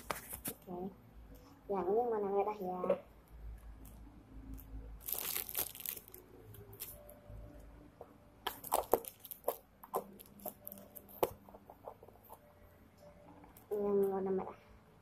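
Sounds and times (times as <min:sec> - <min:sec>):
plastic sheet crinkling: 0:05.0 - 0:07.2, 0:08.5 - 0:11.4.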